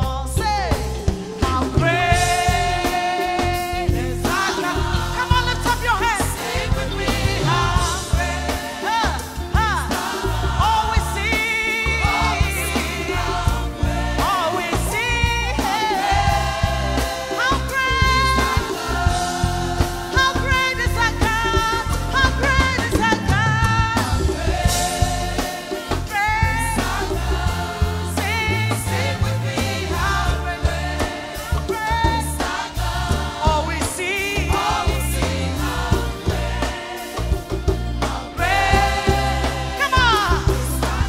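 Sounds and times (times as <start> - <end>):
woman singing into a microphone: 0.0 - 9.9, 20.1 - 24.3, 39.8 - 41.0
drums with a steady beat: 0.0 - 41.0
keyboard: 0.0 - 41.0
backing singers: 0.9 - 41.0.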